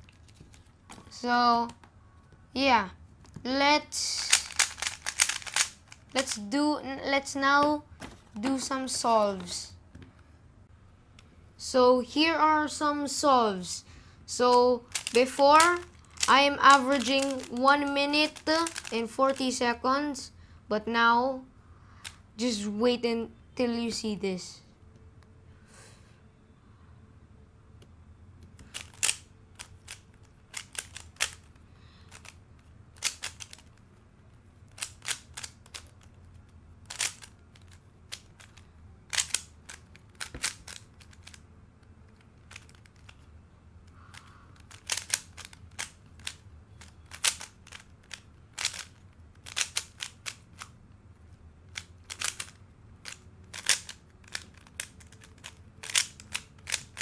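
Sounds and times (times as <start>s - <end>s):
speed cube plastic clicks: 4.0s - 6.6s, 14.4s - 19.6s, 28.4s - 33.8s, 34.6s - 43.3s, 43.9s - 50.8s, 51.7s - 57.0s.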